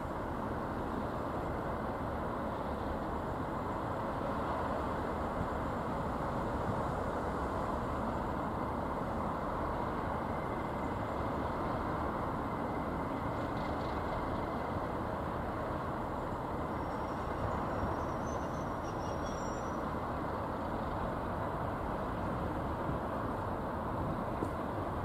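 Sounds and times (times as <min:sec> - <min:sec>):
diesel locomotives idling: 0:00.0 - 0:25.0
faint high whistle: 0:16.8 - 0:19.8.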